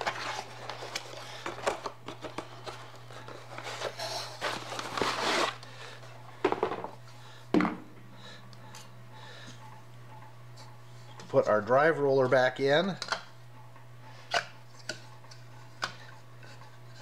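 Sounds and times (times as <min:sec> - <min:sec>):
cardboard rustling and crinkling: 0:00.0 - 0:05.6
steady low hum: 0:00.0 - 0:17.0.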